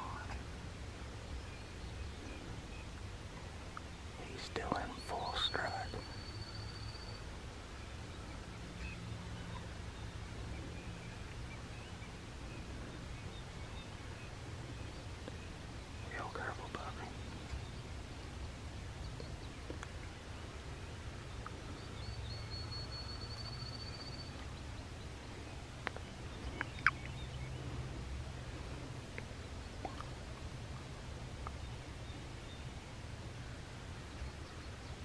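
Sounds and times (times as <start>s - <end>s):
steady low rumble: 0.0s - 35.0s
bird trill: 22.0s - 24.4s.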